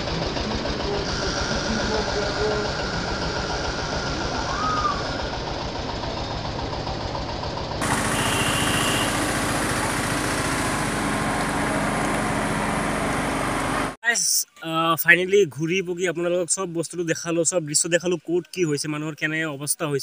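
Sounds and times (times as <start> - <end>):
small engine running: 0.0 - 14.0
steady engine-like noise: 0.0 - 14.0.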